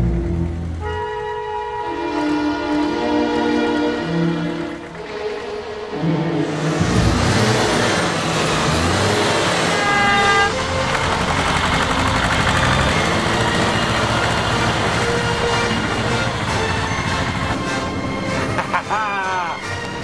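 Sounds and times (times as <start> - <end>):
tractor engine running: 4.7 - 18.6
short horn toot: 9.7 - 10.6.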